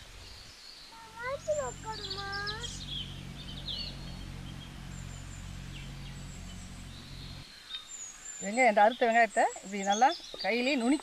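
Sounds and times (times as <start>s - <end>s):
steady low hum: 0.0s - 8.6s
birds chirping: 0.0s - 11.0s.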